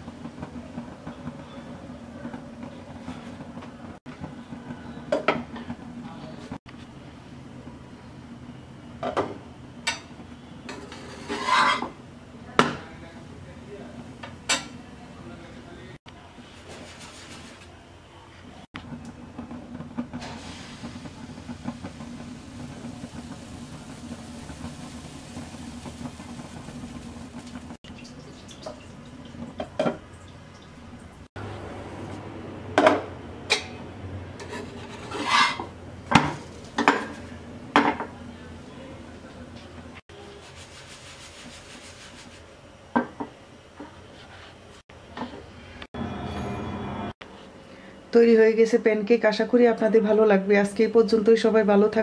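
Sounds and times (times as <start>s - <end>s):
pan scraping on metal grate: 10.7s - 12.0s, 34.4s - 37.5s
gas burner hissing: 18.9s - 27.8s
batter poured into frying pan: 20.2s - 27.8s.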